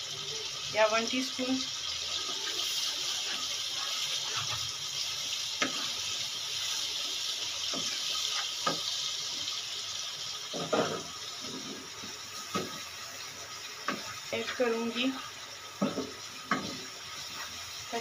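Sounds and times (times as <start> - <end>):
spices sizzling in pan: 0.0 - 18.0
spatula scraping pan: 2.1 - 5.0, 7.6 - 9.0.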